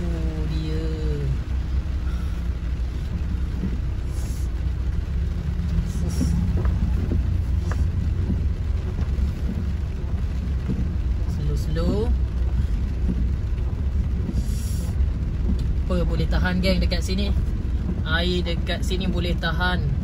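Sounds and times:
car engine and tyre rumble: 0:00.0 - 0:20.0.

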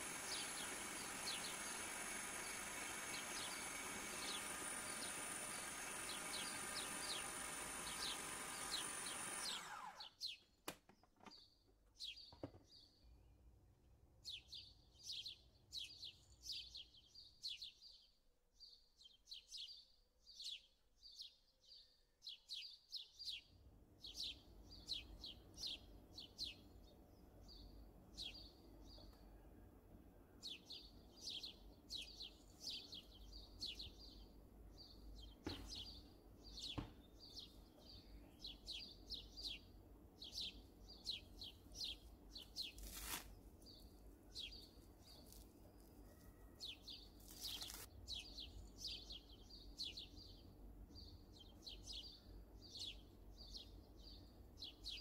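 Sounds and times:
food processor motor running: 0:00.0 - 0:10.1
small birds chirping: 0:00.0 - 0:13.2, 0:14.2 - 0:29.4, 0:30.4 - 0:55.0.

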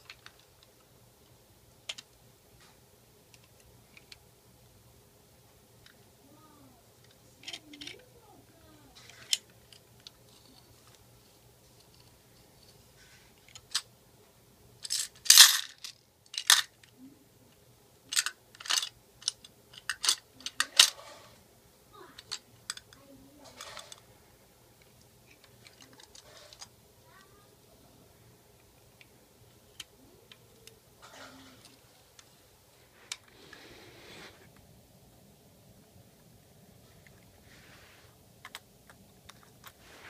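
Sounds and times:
toy mechanism clicks: 0:07.0 - 0:08.1, 0:09.0 - 0:10.2, 0:14.8 - 0:16.9, 0:18.1 - 0:21.4, 0:22.1 - 0:24.0, 0:25.3 - 0:27.2
coins clinking and rattling: 0:14.8 - 0:16.8.

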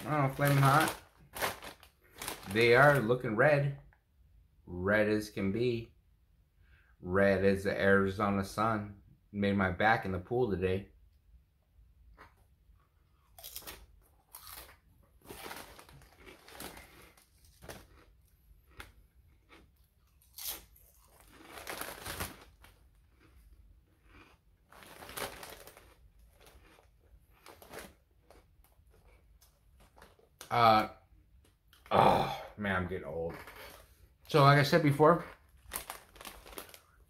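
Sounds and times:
potato chip crunching: 0:00.0 - 0:03.2, 0:13.2 - 0:30.8, 0:33.3 - 0:37.0.

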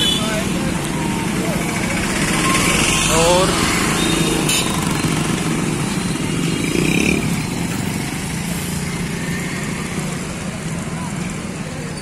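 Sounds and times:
motorcycles passing: 0:00.0 - 0:12.0
traffic noise: 0:00.0 - 0:12.0.

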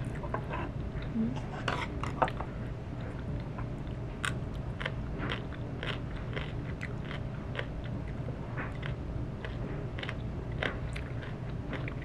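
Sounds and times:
crunchy food being chewed: 0:03.0 - 0:12.0.

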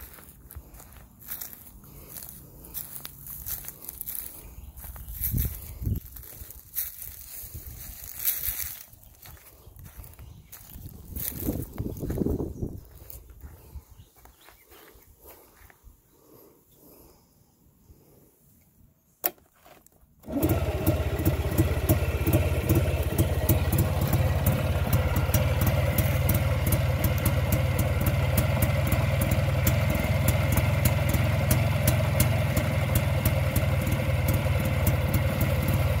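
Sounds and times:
scooter engine idling: 0:20.2 - 0:36.0.

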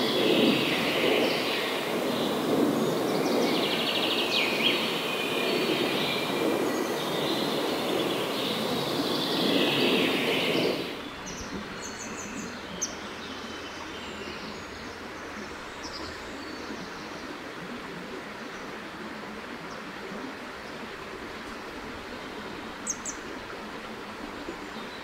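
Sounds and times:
steady rushing background noise: 0:00.0 - 0:11.6
birds chirping and trilling: 0:00.0 - 0:13.0.

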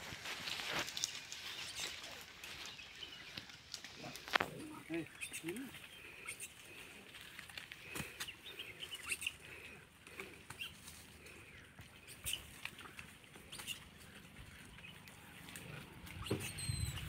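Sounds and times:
clicks and rustles in grass: 0:00.0 - 0:17.0
high chirping: 0:16.2 - 0:17.0.

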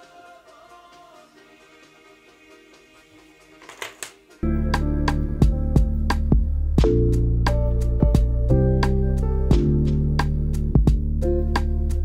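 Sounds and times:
background music: 0:00.0 - 0:12.0.

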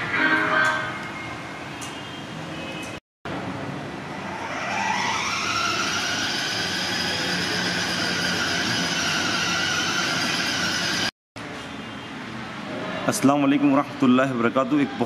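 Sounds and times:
toy car electric motors whining: 0:04.3 - 0:11.1.

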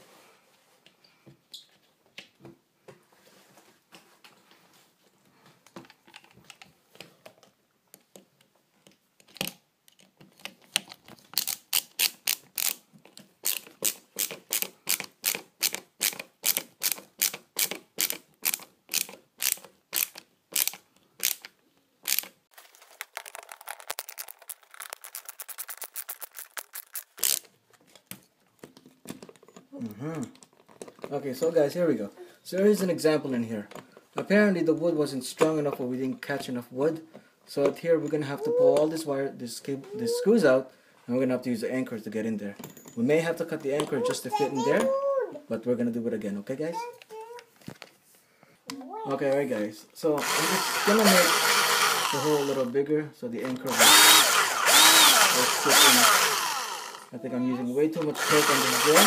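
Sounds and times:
drill clutch clicking: 0:13.4 - 0:21.4, 0:22.1 - 0:22.3, 0:50.2 - 0:52.6, 0:53.6 - 0:57.1, 0:58.2 - 0:59.0
faint handling: 0:22.5 - 0:32.2.

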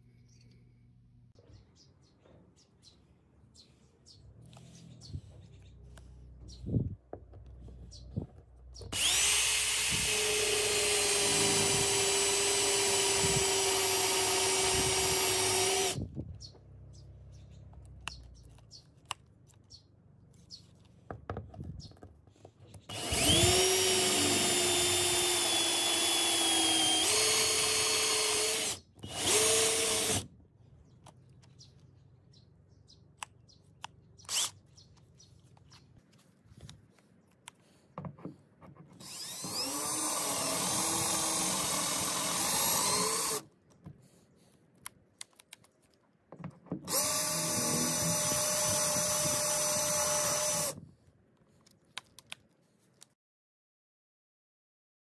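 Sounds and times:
cordless drill whining: 0:08.8 - 0:16.2, 0:22.9 - 0:30.3, 0:34.3 - 0:34.6, 0:39.0 - 0:43.4, 0:46.8 - 0:50.8
small clicks: 0:44.8 - 0:46.1, 0:51.6 - 0:53.2.

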